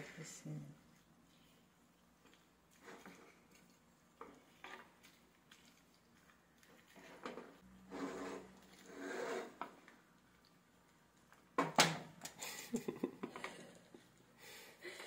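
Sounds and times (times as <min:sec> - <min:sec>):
spatulas scraping noodles in pan: 0:07.0 - 0:09.8.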